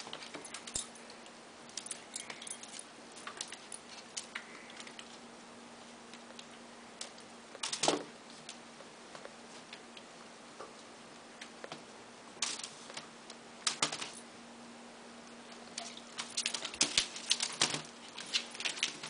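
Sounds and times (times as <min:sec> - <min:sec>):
faint low hum: 0:00.0 - 0:19.0
light clicks and clattering: 0:15.6 - 0:19.0.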